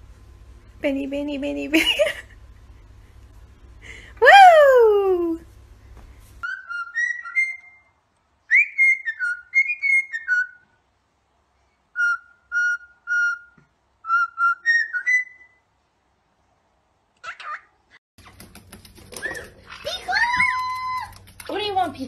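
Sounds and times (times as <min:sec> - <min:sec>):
cockatiel whistling a tune: 0:06.4 - 0:10.7, 0:12.0 - 0:15.6.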